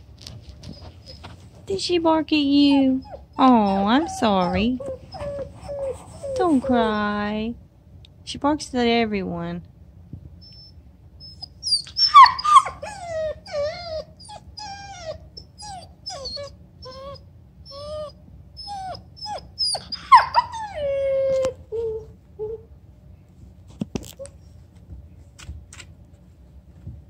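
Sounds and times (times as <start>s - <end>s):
puppy whining and whimpering: 0.6s - 1.5s, 2.5s - 7.1s, 10.4s - 22.7s
puppy yelping: 2.6s - 6.9s, 10.4s - 22.7s.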